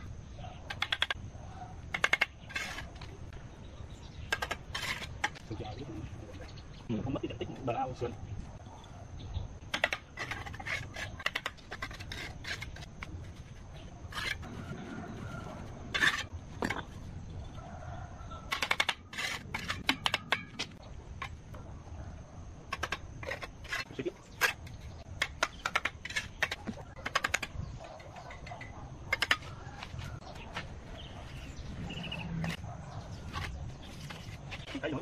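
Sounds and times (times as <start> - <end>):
trowel tapping and scraping bricks: 0.7 - 1.2, 1.9 - 3.1, 4.2 - 5.5, 9.7 - 14.5, 15.9 - 17.0, 18.5 - 21.4, 22.7 - 30.0.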